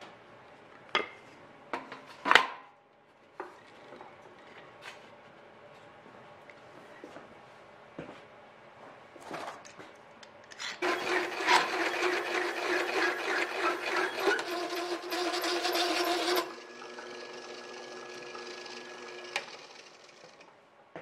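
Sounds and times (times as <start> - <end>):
cutter scraping aluminium sheet: 10.8 - 16.5
drill press humming: 10.8 - 20.5.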